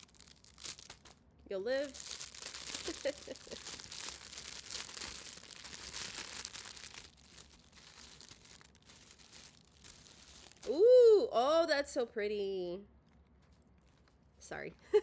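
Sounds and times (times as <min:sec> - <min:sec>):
gift wrapping crinkling: 0:00.0 - 0:10.8.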